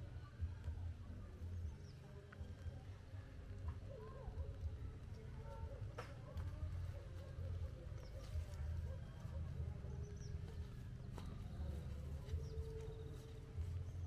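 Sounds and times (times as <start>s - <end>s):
footsteps through grass: 6.4s - 14.0s.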